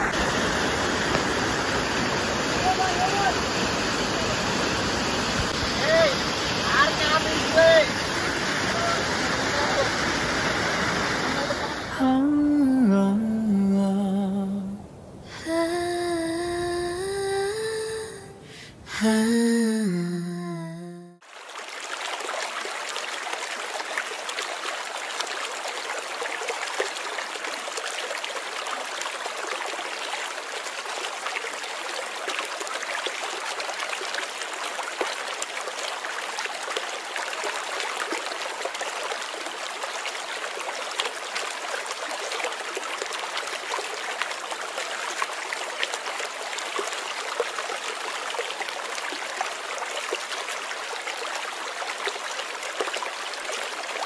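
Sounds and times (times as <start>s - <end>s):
river water rushing: 0.0s - 12.9s, 21.2s - 54.0s
small water splashes: 21.2s - 54.0s.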